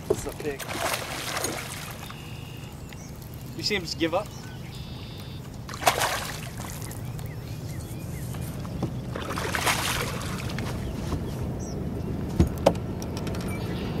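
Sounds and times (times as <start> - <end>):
fish splashing at water surface: 0.5 - 2.3, 5.7 - 7.0, 9.2 - 10.6.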